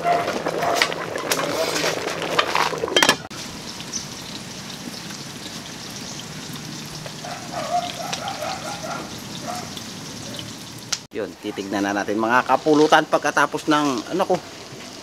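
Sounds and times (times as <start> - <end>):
soup boiling in a pot: 0.0 - 11.0
wood fire crackling: 0.0 - 15.0.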